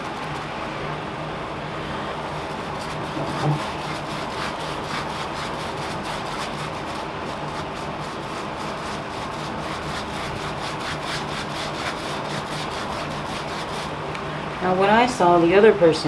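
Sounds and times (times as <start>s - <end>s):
steady low hum: 0.0s - 16.0s
sponge brush scratchy rubbing: 2.4s - 14.0s.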